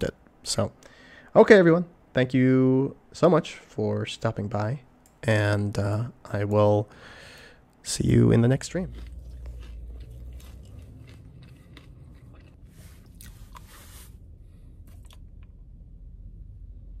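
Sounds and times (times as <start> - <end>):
low steady hum: 0.0 - 17.0
ice cream cone crunching: 8.4 - 13.7.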